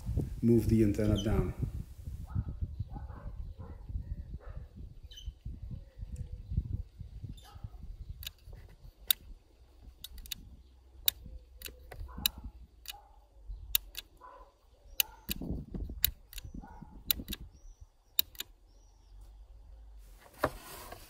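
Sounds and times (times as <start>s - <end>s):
switch clicking: 11.0s - 13.0s, 13.7s - 14.1s, 18.2s - 18.5s.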